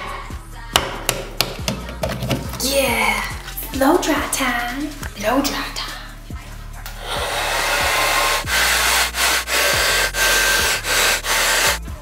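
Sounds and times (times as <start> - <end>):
hair dryer blowing: 7.2 - 11.8.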